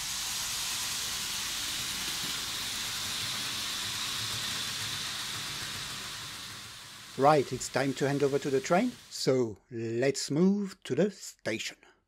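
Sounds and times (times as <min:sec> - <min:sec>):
model train wheels and motor hiss: 0:00.0 - 0:09.5.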